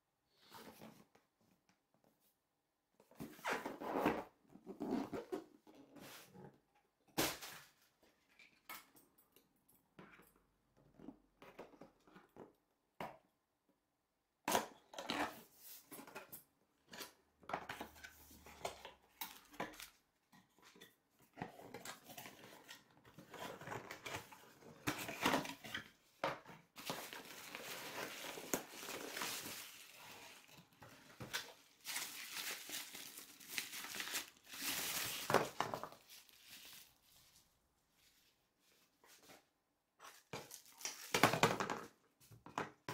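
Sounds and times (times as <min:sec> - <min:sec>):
cardboard box being opened: 0:26.8 - 0:37.0
plastic wrap crinkling: 0:26.8 - 0:37.4.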